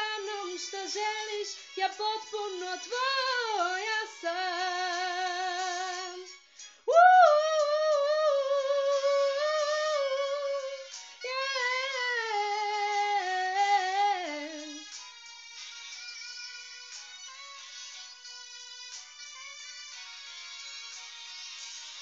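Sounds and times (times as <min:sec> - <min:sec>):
pop backing track: 0:00.0 - 0:22.0
woman singing long held notes: 0:06.9 - 0:14.8.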